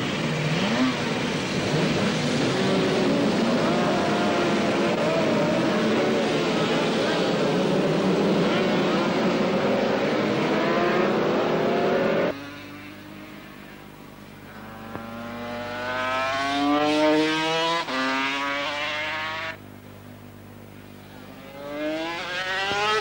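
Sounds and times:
racing motorcycles at full throttle: 0.0 - 19.6, 21.0 - 23.0.

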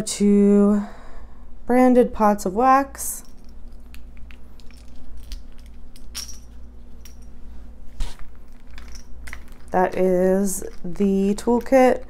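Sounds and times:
plastic items clicking and tapping: 8.4 - 12.0.

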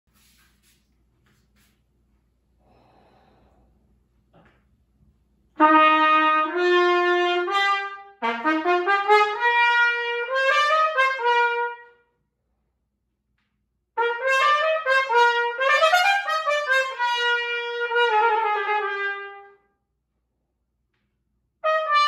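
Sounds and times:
solo trumpet playing: 5.6 - 12.1, 14.0 - 19.7, 21.6 - 22.0.

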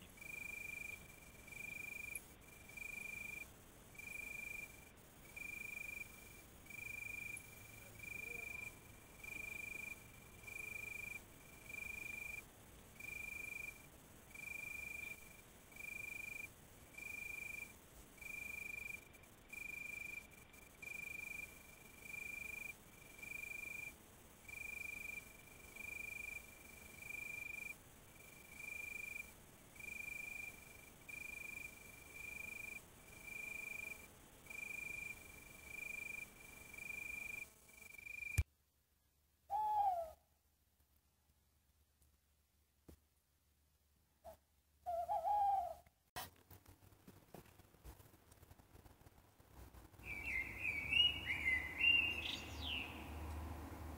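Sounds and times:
high pure animal call: 39.5 - 40.2, 44.2 - 45.8.

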